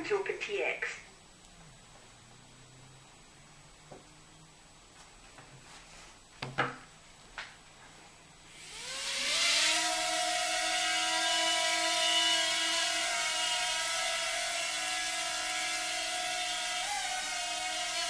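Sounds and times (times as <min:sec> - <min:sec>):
quadcopter motors whining: 0:08.5 - 0:18.0.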